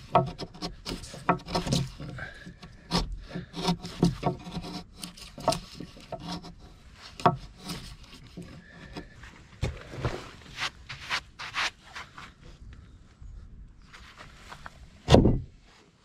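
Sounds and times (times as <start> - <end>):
hand tool scraping wood: 0.0 - 12.2.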